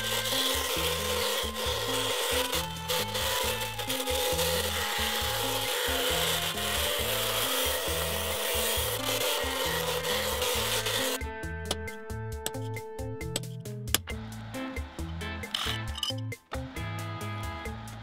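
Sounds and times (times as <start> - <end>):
bandsaw cutting steel: 0.0 - 12.7, 15.4 - 16.2.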